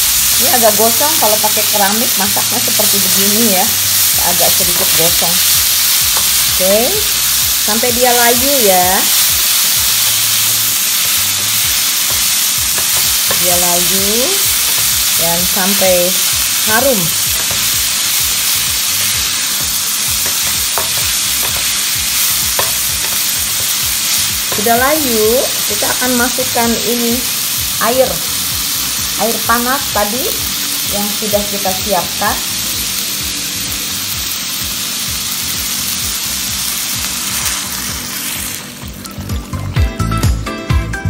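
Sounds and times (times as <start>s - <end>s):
vegetables sizzling in oil: 0.0s - 39.7s
background music with beat: 38.7s - 41.0s.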